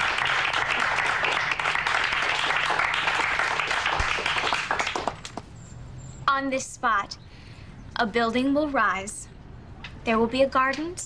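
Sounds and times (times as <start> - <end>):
crowd applauding: 0.0 - 5.4.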